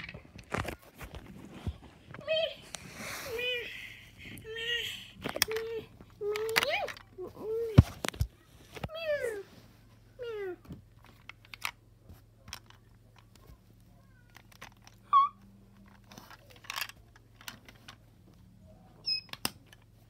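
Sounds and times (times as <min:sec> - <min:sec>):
low steady hum: 0:00.0 - 0:20.0
plastic toys clicking and knocking: 0:05.2 - 0:07.2, 0:10.6 - 0:18.1, 0:19.1 - 0:20.0.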